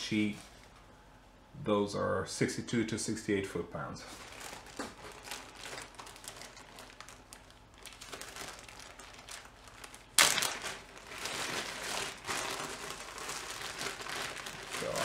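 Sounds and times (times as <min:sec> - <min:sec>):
plastic bag rustling and crinkling: 0:00.0 - 0:00.8, 0:04.0 - 0:15.0.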